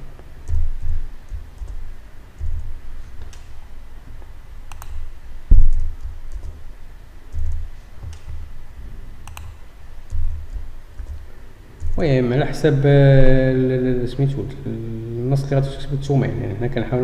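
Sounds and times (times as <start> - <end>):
low thumps: 0.0 - 14.2
keyboard typing: 0.2 - 3.7, 4.6 - 6.7, 7.3 - 8.6, 9.2 - 12.2
mouse clicks: 2.4 - 3.6, 4.7 - 5.1, 9.2 - 11.2.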